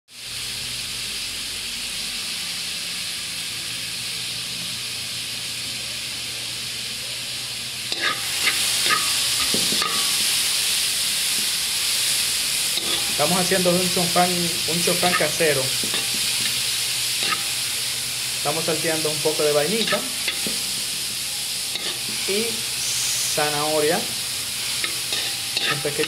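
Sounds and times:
vegetables sizzling in oil: 0.1 - 26.0
spatula scraping a wok: 7.9 - 18.1, 19.7 - 23.4, 24.0 - 26.0.

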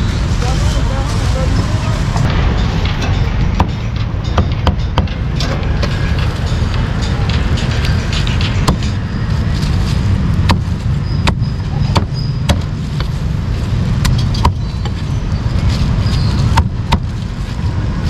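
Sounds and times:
street traffic rumble: 0.0 - 18.0
cleaver chopping meat on wood: 10.4 - 12.7, 16.5 - 17.1.

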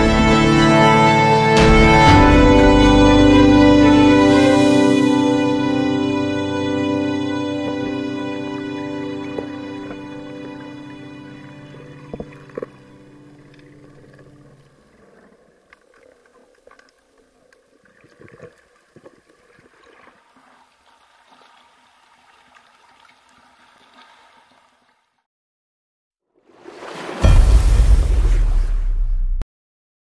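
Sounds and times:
music: 0.0 - 14.7
underwater gurgling water: 12.1 - 24.0
small clicks and crackles: 13.4 - 20.5.

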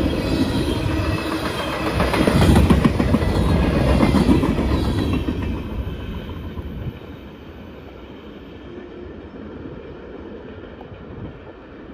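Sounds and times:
train rumble: 0.0 - 11.9
train wheels on rails: 0.0 - 11.9.

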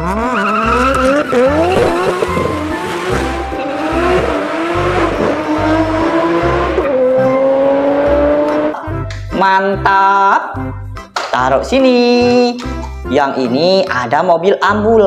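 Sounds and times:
race car engine revving: 0.0 - 8.9.

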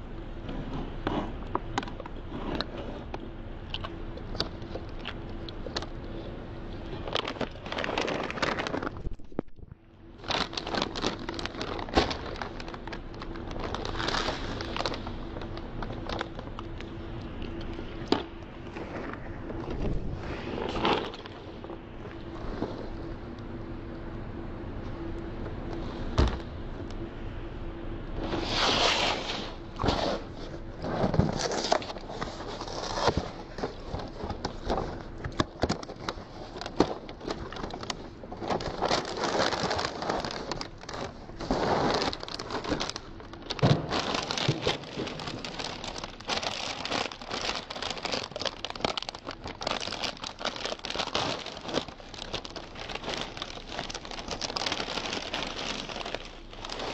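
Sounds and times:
plastic bag crinkling: 3.7 - 23.3, 28.3 - 56.9
cardboard boxes rustling: 6.9 - 9.3, 10.2 - 23.2, 28.2 - 56.9.

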